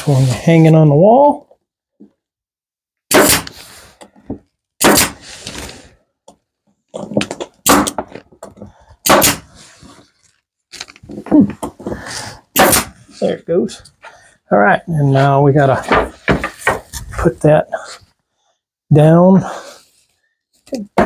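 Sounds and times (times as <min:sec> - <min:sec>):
sharp strikes on wooden boards: 0:03.1 - 0:03.5, 0:04.8 - 0:05.2, 0:07.2 - 0:08.1, 0:09.0 - 0:09.5, 0:12.5 - 0:13.0, 0:15.9 - 0:16.8.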